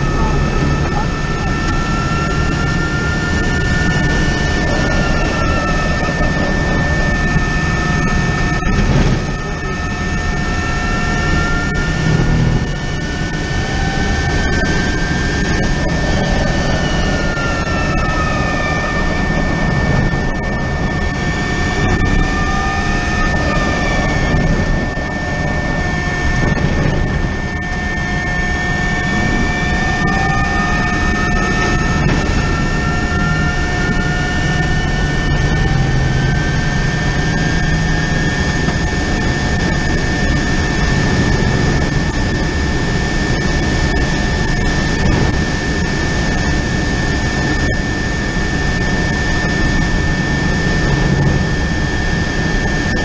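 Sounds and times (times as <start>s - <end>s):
electric drivetrain whine: 0.0s - 53.0s
steady high tone: 0.0s - 53.0s
wind and road noise: 0.0s - 53.0s.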